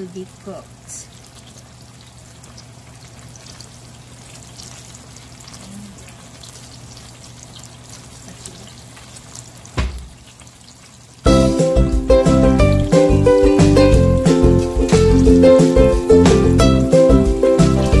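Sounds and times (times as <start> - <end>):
fish sizzling in a frying pan: 0.0 - 18.0
short thump: 9.8 - 10.2.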